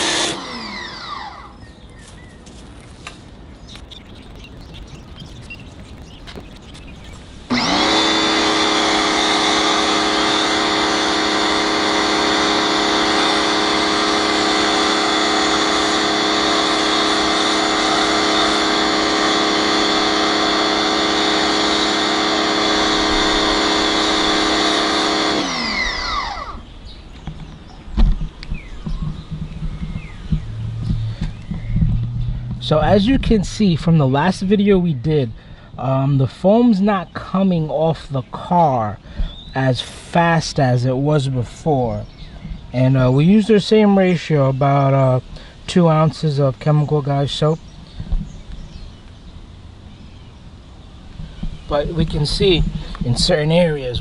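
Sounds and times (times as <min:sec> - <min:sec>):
pressure washer motor running: 0:00.0 - 0:01.5, 0:03.9 - 0:26.7.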